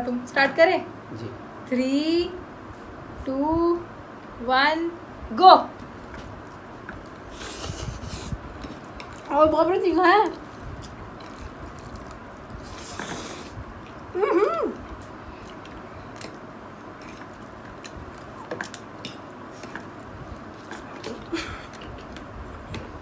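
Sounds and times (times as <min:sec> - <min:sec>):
chewing and slurping: 0:07.0 - 0:09.3, 0:10.3 - 0:14.0, 0:14.8 - 0:22.9.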